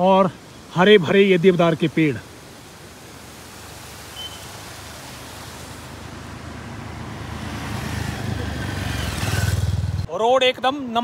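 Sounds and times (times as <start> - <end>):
background hiss: 0.0 - 10.1
motor scooters approaching: 5.3 - 10.1.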